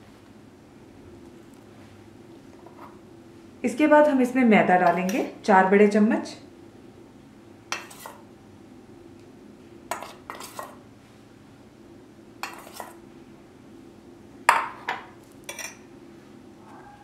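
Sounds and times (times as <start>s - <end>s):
metal spoon clinking on bowls: 14.5s - 15.9s.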